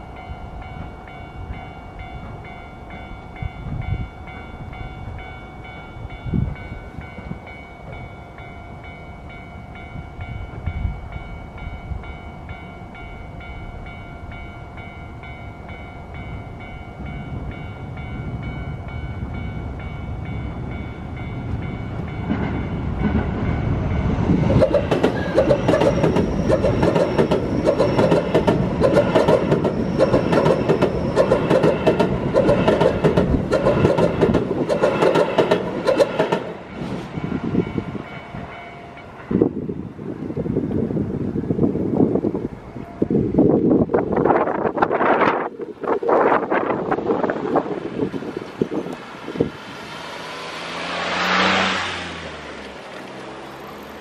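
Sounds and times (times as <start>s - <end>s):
electric train passing rumble: 0.0s - 54.0s
train wheel clatter: 24.2s - 37.1s.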